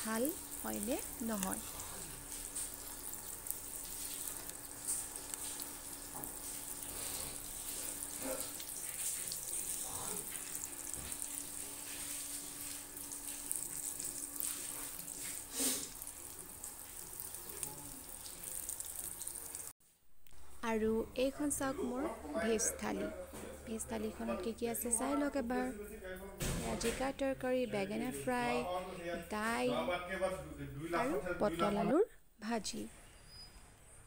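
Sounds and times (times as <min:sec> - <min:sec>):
pot simmering with watery bubbling: 0:00.0 - 0:20.6.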